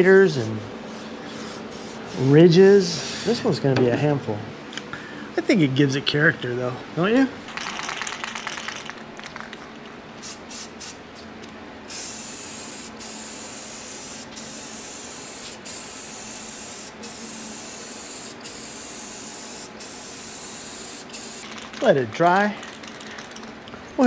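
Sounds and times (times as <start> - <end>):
aerosol spray can hissing: 10.2 - 11.0, 11.9 - 21.4.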